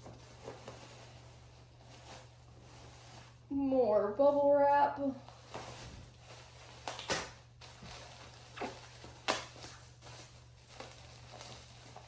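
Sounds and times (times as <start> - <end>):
bubble wrap crinkling: 0.0 - 4.4, 5.0 - 12.0.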